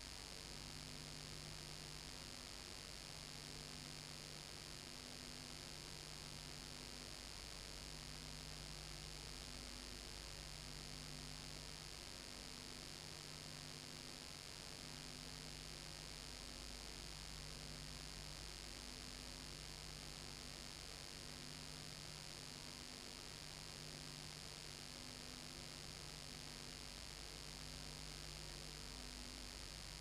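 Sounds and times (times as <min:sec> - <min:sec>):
electrical mains hum: 0:00.0 - 0:30.0.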